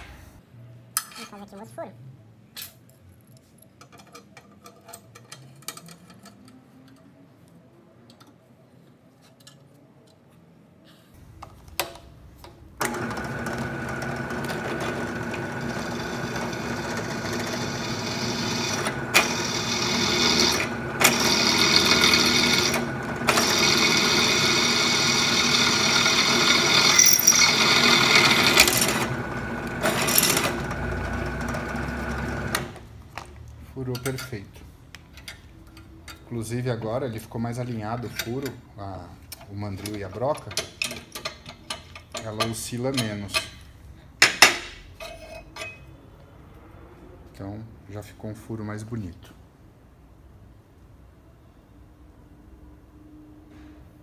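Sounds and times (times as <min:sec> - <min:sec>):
drill press motor hum: 0:12.8 - 0:32.8
drill bit cutting metal: 0:15.3 - 0:30.8.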